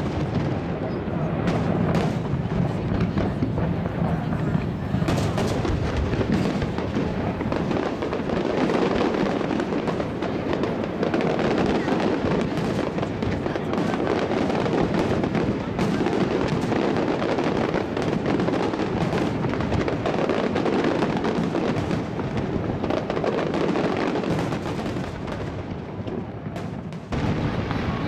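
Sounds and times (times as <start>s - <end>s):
fireworks bursting: 0.0s - 28.0s.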